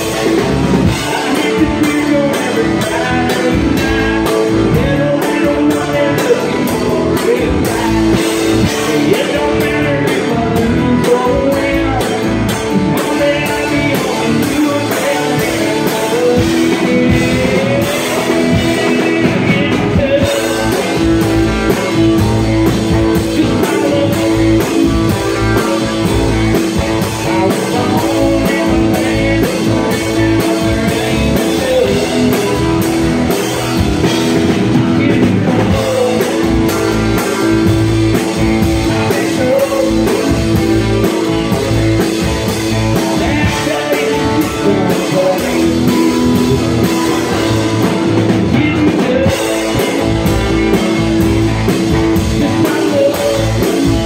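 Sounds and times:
drums with steady beat: 0.0s - 54.0s
electric guitar or bass: 0.0s - 54.0s
man singing into a microphone: 0.0s - 54.0s.

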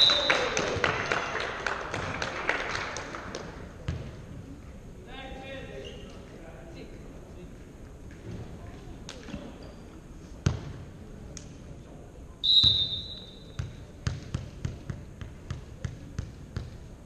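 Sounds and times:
referee's whistle: 0.0s - 0.5s, 12.4s - 13.6s
volleyball bouncing on wooden floor: 13.6s - 16.8s.

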